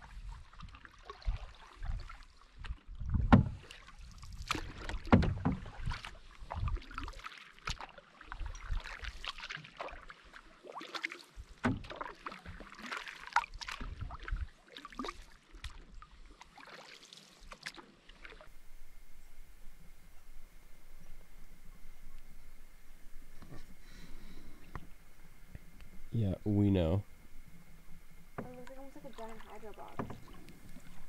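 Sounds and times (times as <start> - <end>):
paddles splashing through water: 0.0 - 18.8, 27.1 - 31.0.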